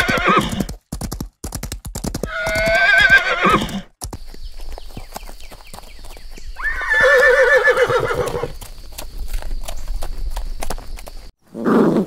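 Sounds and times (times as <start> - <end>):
horse whinnying: 0.0 - 0.7, 2.2 - 3.9, 6.6 - 8.6, 11.6 - 12.0
hooves clip-clopping: 0.0 - 11.3.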